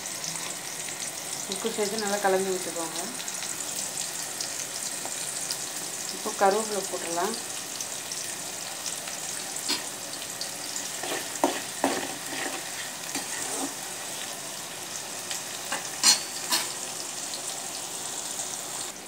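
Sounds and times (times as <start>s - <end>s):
vegetables sizzling in hot oil: 0.0s - 19.0s
spoon knocking and scraping pan: 9.6s - 9.9s, 10.7s - 14.4s, 15.6s - 16.8s.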